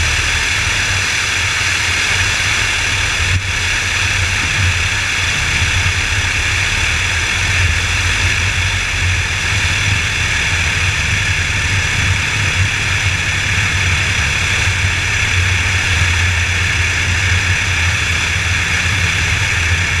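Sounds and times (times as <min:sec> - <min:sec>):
propeller plane engine idling: 0:00.0 - 0:20.0.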